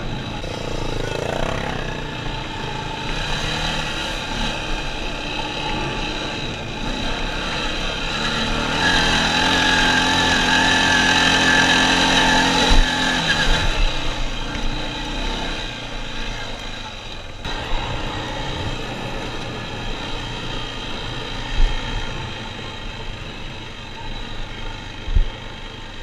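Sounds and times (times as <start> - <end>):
quad bike engine revving: 0.0 - 26.0.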